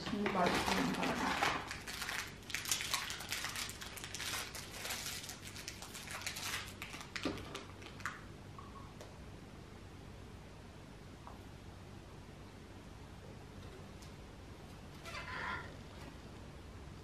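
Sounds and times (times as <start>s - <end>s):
plastic crinkling and rustling: 0.0s - 8.2s.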